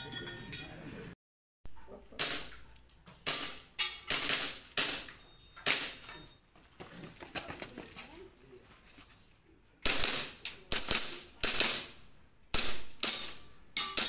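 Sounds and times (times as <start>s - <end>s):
ringing of steel plate targets: 0.0s - 0.9s, 3.2s - 6.4s, 9.9s - 11.9s, 12.6s - 14.0s
airsoft pistol shots: 9.8s - 13.4s.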